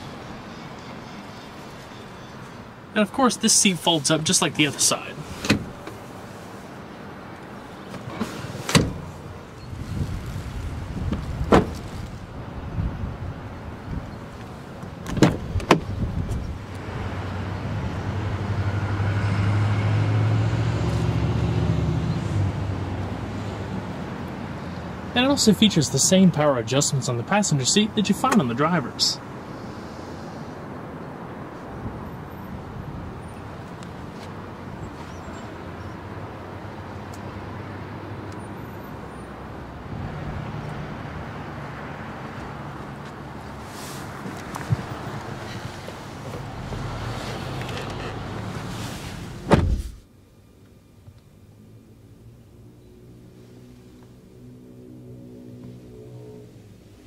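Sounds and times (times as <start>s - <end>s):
vehicle engine hum: 1.3s - 26.1s, 28.2s - 57.0s.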